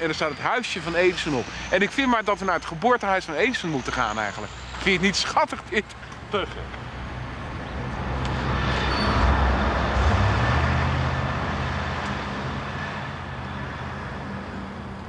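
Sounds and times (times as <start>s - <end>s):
vehicle passing by: 6.9s - 15.0s.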